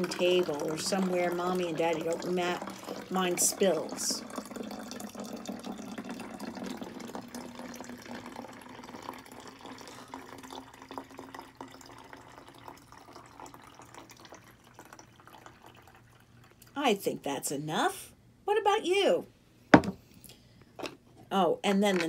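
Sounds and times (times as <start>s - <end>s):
water trickling into bottle: 0.0s - 16.8s.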